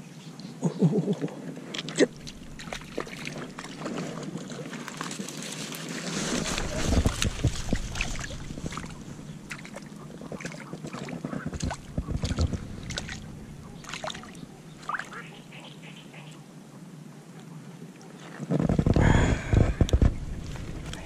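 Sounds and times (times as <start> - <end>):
water sloshing and dripping: 1.6 - 15.3, 19.8 - 21.0
branches scraping and clicking: 1.7 - 15.0.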